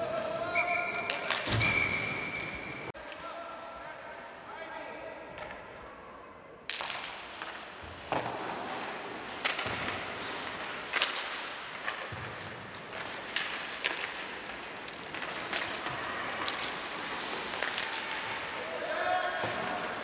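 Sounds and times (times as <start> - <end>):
sticks and puck cracking: 1.0 - 1.7, 6.7 - 20.0
skate blades scraping ice: 6.8 - 20.0.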